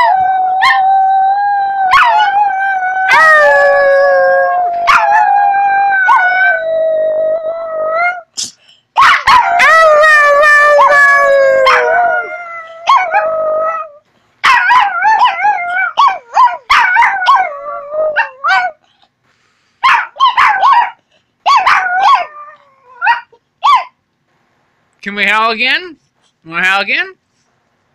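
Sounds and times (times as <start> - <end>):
small dog howling and yipping: 0.0 - 8.3, 9.0 - 18.8, 19.8 - 23.9.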